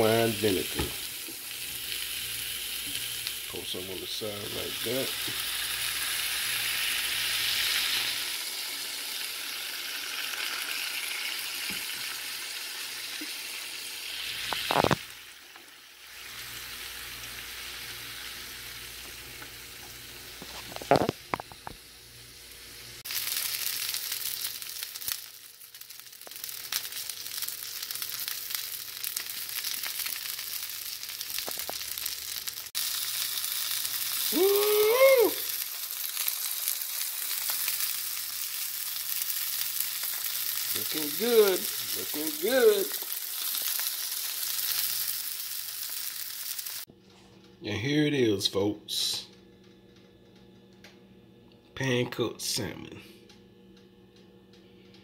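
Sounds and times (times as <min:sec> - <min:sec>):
fish sizzling in a pan: 0:00.0 - 0:46.9.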